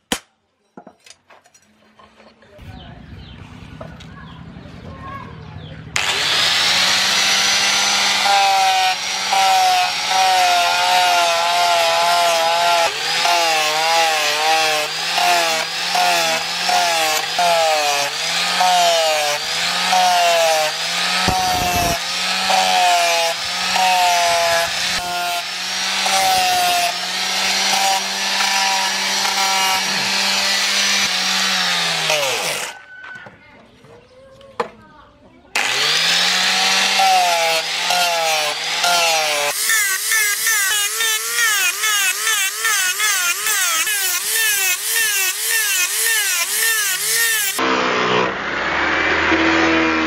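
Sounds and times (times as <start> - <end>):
angle grinder sanding metal: 6.0 - 32.8, 35.6 - 48.0.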